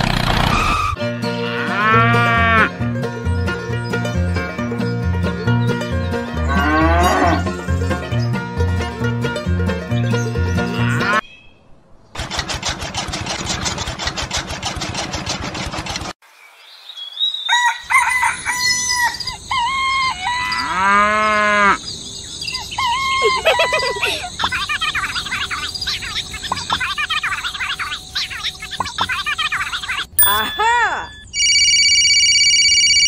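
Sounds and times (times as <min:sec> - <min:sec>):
electric motor rattling: 0:00.0 - 0:00.7, 0:12.2 - 0:16.2
birds chirping: 0:16.3 - 0:31.4
rooster crowing: 0:17.4 - 0:21.8
chickens clucking: 0:23.0 - 0:30.4.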